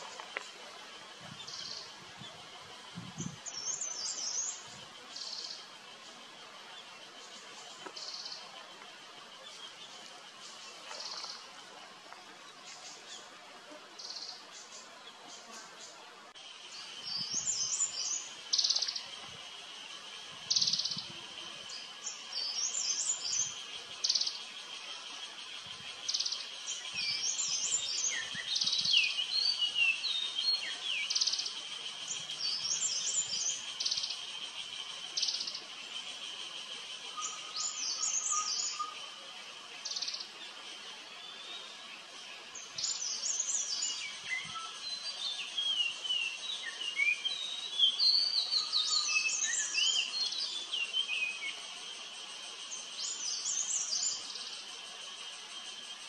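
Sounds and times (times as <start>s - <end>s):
cicada drone: 0.0s - 56.0s
birds chirping and calling: 14.0s - 55.9s.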